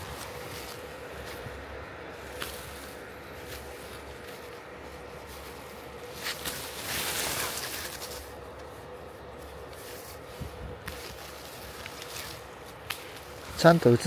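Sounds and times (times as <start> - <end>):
faint steady hum: 0.0 - 14.0
leaves and twigs rustling: 0.0 - 14.0
pruning shears snipping: 5.4 - 8.7, 10.8 - 13.6.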